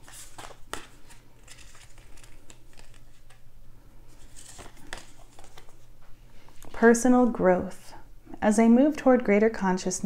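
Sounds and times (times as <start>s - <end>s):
cards being shuffled: 0.0s - 3.4s, 4.1s - 6.8s.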